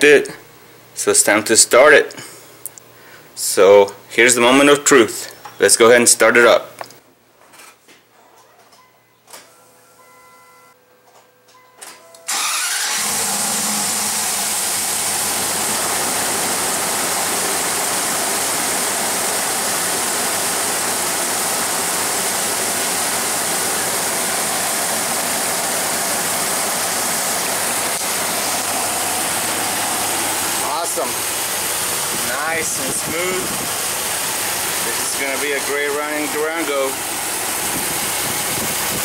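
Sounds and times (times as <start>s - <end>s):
car engine cranking and starting: 12.3s - 39.0s
car engine idling: 12.3s - 39.0s.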